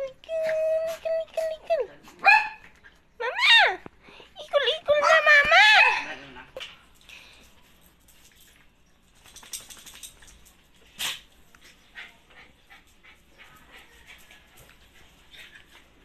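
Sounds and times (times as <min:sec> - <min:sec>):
dog yipping: 0:02.2 - 0:02.6.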